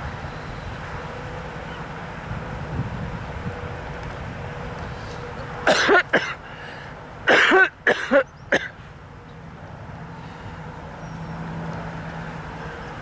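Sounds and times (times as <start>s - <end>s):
steady outdoor hiss: 0.0s - 13.0s
person clearing throat: 5.7s - 6.4s, 7.3s - 8.7s.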